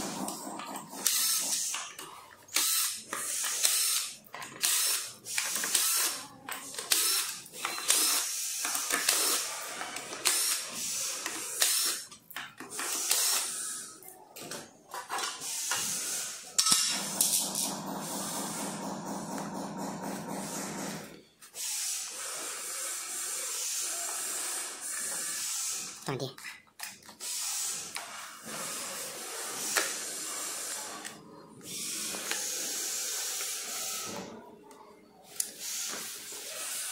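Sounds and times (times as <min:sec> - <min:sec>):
cordless drill whirring: 0:02.5 - 0:06.2, 0:06.8 - 0:12.1, 0:12.8 - 0:13.9, 0:20.2 - 0:26.0.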